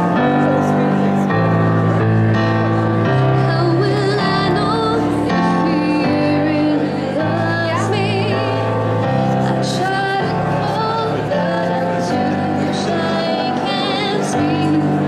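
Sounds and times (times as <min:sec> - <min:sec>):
woman singing slow song: 0:03.3 - 0:15.0.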